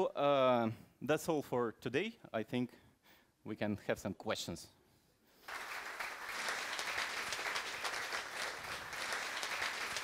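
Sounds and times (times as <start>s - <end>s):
audience applauding: 5.5s - 10.0s.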